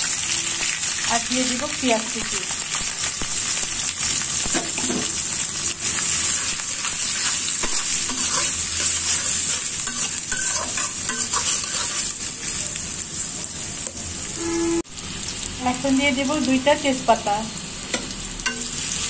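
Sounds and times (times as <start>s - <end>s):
vegetables sizzling in hot oil: 0.0s - 19.0s
metal spatula scraping pan: 6.8s - 12.1s, 14.4s - 14.8s.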